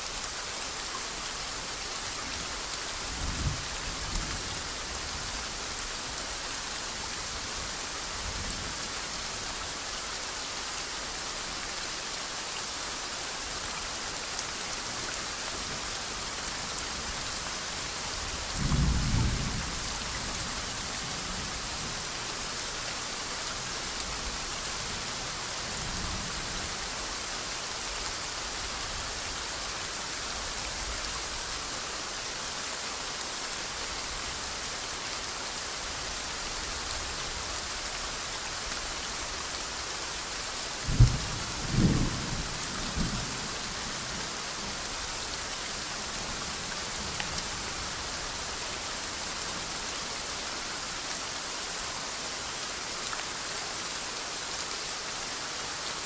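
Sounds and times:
steady soft rain: 0.0s - 56.0s
thunder crack and rumbles: 40.9s - 43.2s.

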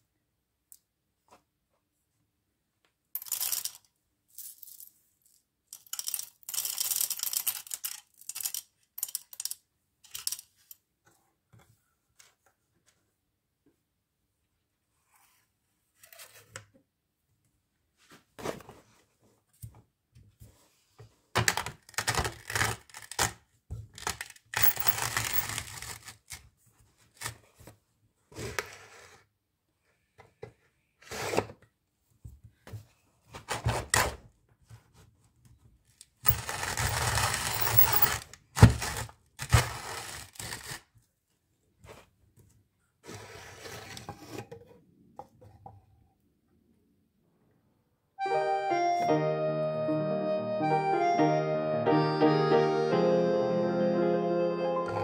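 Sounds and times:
coffee grinder rasping: 36.3s - 38.2s.

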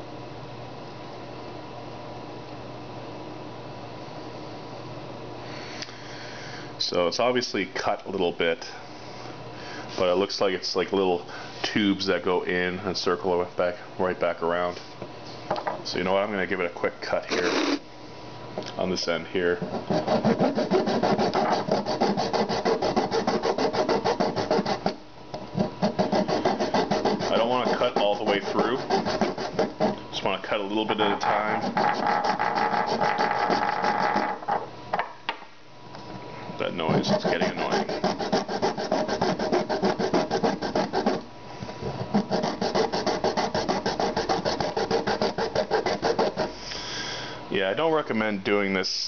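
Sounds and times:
hacksaw sawing through plastic: 19.6s - 25.0s, 25.6s - 30.0s, 31.2s - 34.3s, 36.9s - 41.2s, 42.1s - 46.5s.

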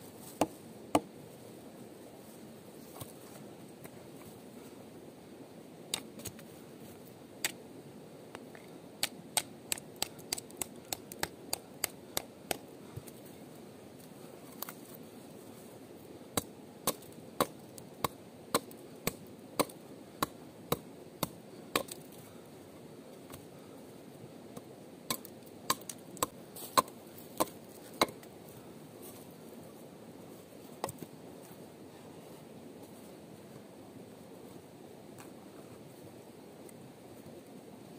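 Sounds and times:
chopping strikes: 16.4s - 22.0s, 24.6s - 28.2s.

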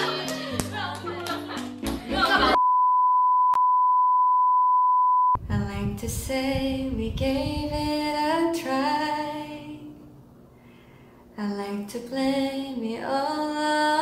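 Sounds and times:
woman singing: 0.0s - 2.6s, 5.4s - 10.1s, 11.4s - 14.0s
steady beep tone: 2.6s - 5.4s.

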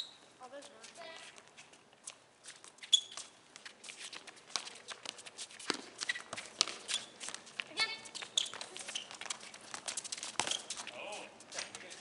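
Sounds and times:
sneaker squeak: 0.0s - 0.3s, 2.5s - 11.0s
sneakers running on concrete: 0.6s - 12.0s
ball being kicked: 4.5s - 10.9s.

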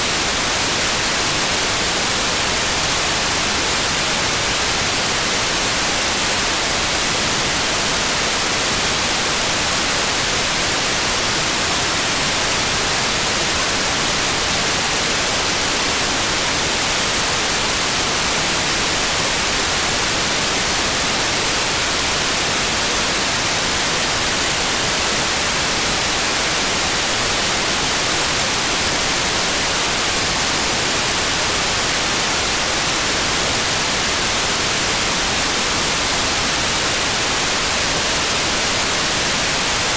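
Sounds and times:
radio static hiss: 0.0s - 39.9s.

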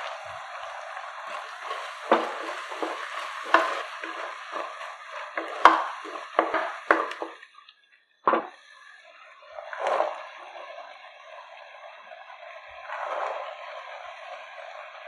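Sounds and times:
oil sizzling: 0.0s - 7.6s
spatula knocking against pan: 5.4s - 7.4s.

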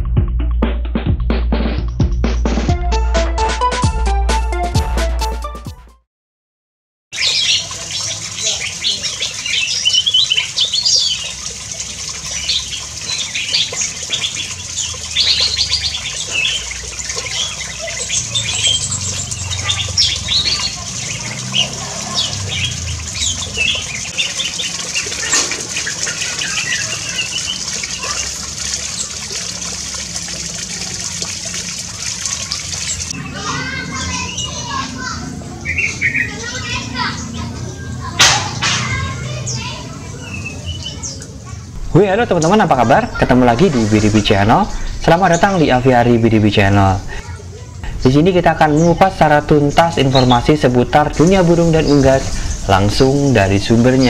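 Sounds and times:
birds chirping and calling: 7.2s - 54.0s.

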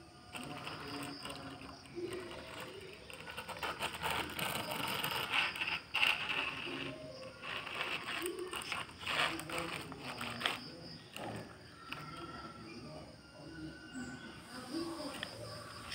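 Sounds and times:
toy truck rattling on concrete: 0.3s - 12.5s.

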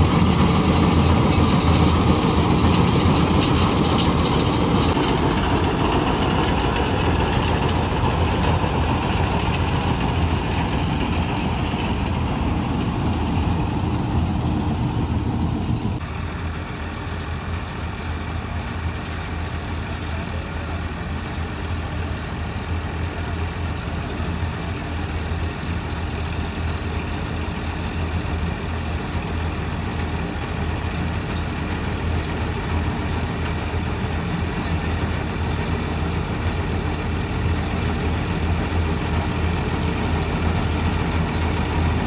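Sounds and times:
deep engine hum: 0.0s - 18.6s
harvesting machinery clatter: 0.0s - 22.1s, 23.0s - 42.0s.

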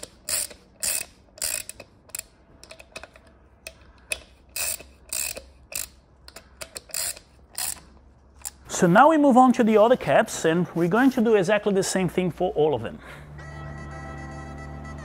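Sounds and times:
ratchet wrench clicking: 0.0s - 8.7s.

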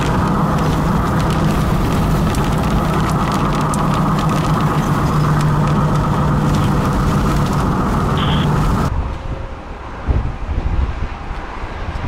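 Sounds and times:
raindrops tapping on windshield: 0.0s - 8.9s
car engine and tyre drone: 0.0s - 12.0s.

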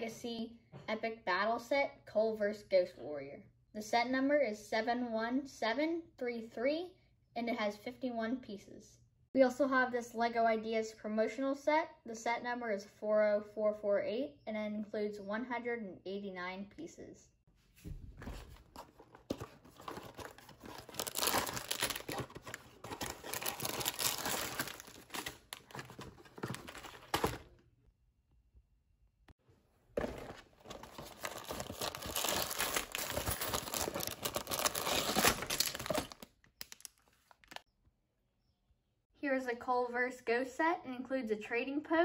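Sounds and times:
cardboard boxes tearing: 18.8s - 27.5s, 30.0s - 36.2s
plastic bags crinkling: 18.8s - 27.5s, 30.0s - 37.6s.

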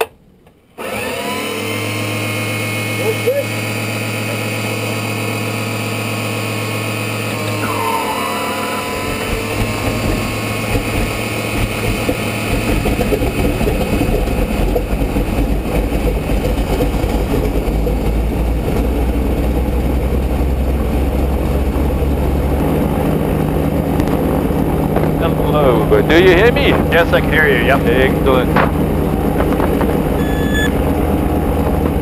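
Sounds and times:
radial engine idling: 7.2s - 17.2s, 25.0s - 31.2s.

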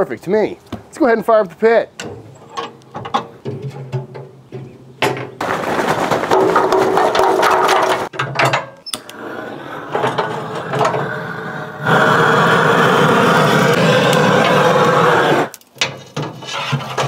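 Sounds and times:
charcoal and metal rattling: 1.9s - 8.8s, 15.6s - 17.0s
steady rushing noise: 10.1s - 15.5s.

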